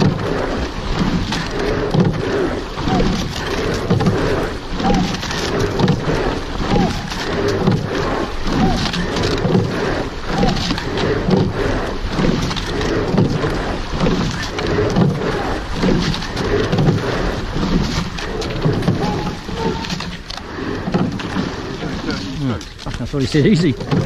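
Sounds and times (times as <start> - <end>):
oarlocks clunking: 0.0 - 24.0
oars splashing: 0.0 - 24.0
water rushing along hull: 0.0 - 24.0
short squeaks: 18.8 - 20.3.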